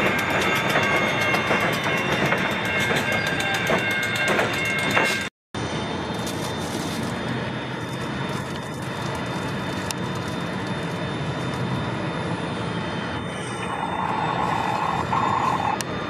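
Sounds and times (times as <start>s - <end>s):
crossing bell ringing: 0.0s - 5.3s
freight train wheels clacking: 0.0s - 5.3s
diesel locomotives rumbling: 0.0s - 16.0s.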